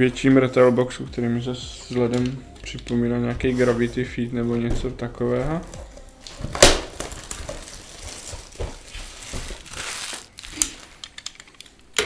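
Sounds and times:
plastic shrink-wrap crinkling: 5.7 - 11.9.

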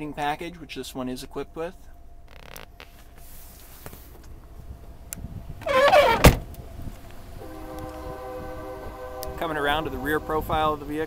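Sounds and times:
car door creaking: 2.2 - 4.2, 5.6 - 6.6
car door slamming: 5.6 - 6.6.

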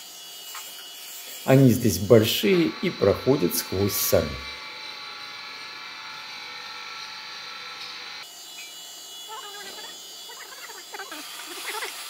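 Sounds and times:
steady electrical hum: 1.2 - 8.2.

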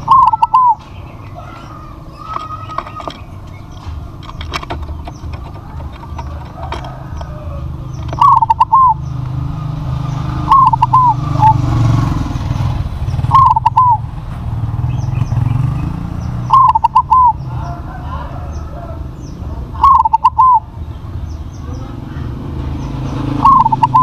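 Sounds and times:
dove cooing: 0.0 - 9.2, 10.3 - 12.1, 13.1 - 14.1, 16.5 - 20.7, 23.2 - 24.0.

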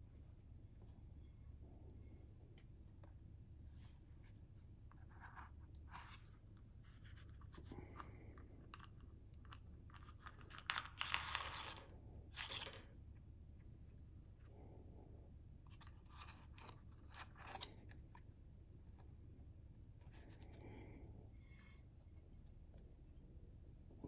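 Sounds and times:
paper cap scraping and rustling: 8.7 - 12.9
paper rustle: 9.5 - 12.9.

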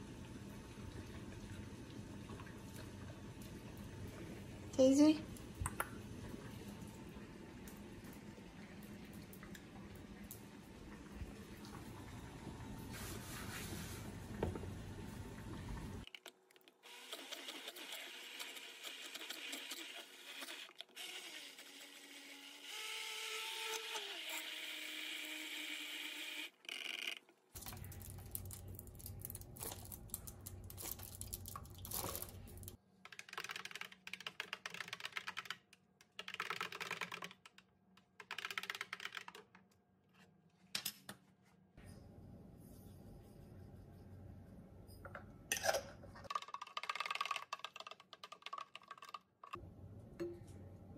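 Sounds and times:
immersion blender running: 16.9 - 26.6.

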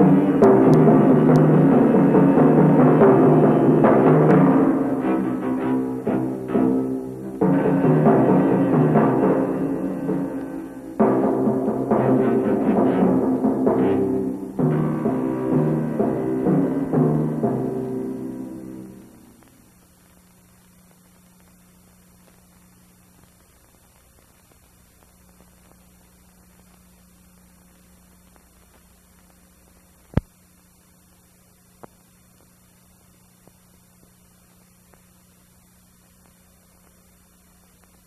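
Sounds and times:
timpani and orchestra chord: 0.0 - 19.4
electrical mains hum: 0.0 - 38.0
faint hiss: 0.0 - 38.0.

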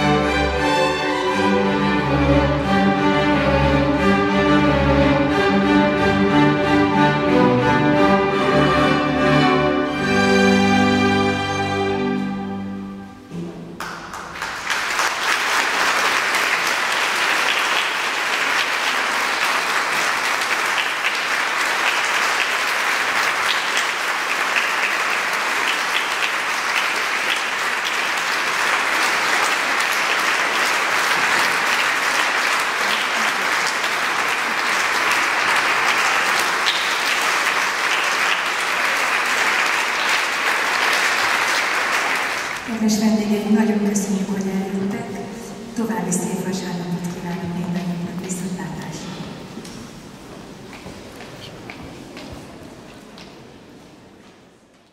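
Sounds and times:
string orchestra chord: 0.0 - 13.9
audience applauding: 13.8 - 42.8.

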